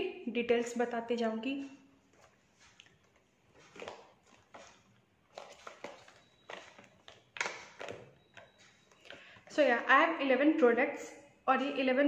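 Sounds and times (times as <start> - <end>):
plastic makeup products clicking: 5.4 - 8.5.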